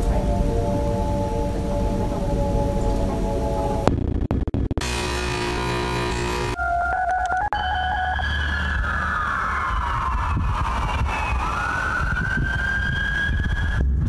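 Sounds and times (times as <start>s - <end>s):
emergency siren wailing: 0.0s - 3.9s, 4.8s - 13.9s
electronic keyboard tone: 4.8s - 10.5s.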